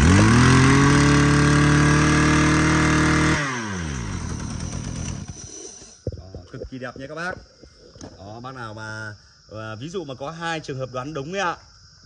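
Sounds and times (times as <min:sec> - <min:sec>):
brush cutter engine revving: 0:00.0 - 0:05.9.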